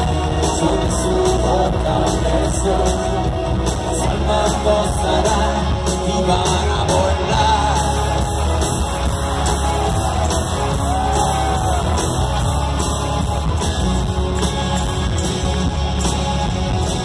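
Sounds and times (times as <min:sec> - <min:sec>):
person singing: 0:00.0 - 0:12.9
rock band playing live: 0:00.0 - 0:17.0
drum beat: 0:07.4 - 0:17.0.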